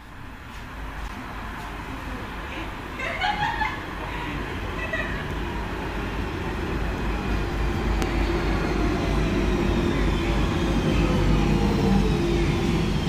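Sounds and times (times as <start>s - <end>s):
train rumble: 0.0s - 13.0s
train brake whine: 6.8s - 13.0s.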